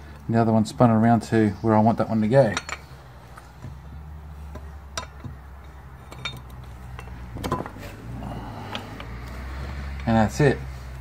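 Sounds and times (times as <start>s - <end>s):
low steady hum: 0.0s - 10.2s
metal clinks and taps: 2.5s - 3.9s, 4.5s - 7.8s.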